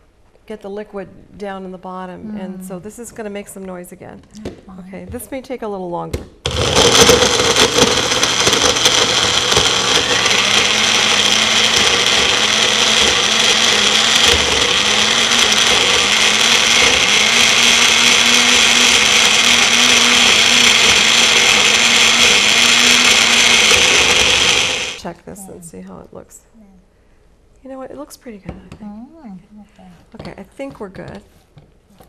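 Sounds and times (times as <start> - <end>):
blender motor whirring: 6.5 - 25.0.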